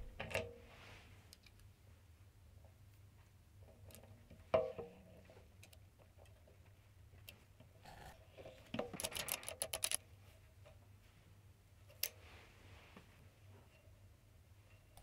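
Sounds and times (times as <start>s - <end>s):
metal parts clicking and scraping: 7.9s - 10.0s.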